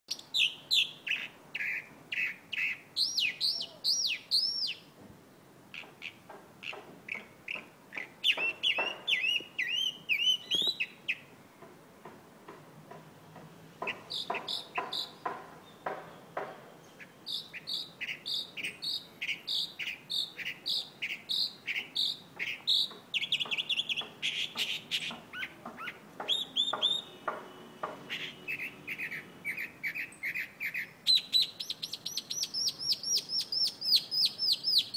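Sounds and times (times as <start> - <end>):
mockingbird singing: 0.1 - 4.9, 5.7 - 11.3, 13.8 - 34.9.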